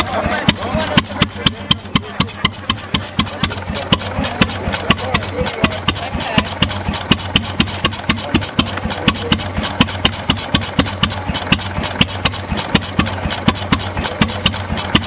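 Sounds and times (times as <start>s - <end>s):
stationary engine idling: 0.0s - 15.0s.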